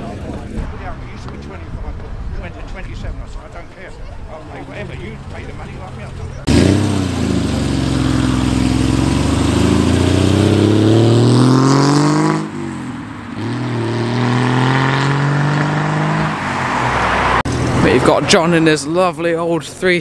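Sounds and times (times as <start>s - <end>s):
car engine accelerating: 4.7s - 18.3s.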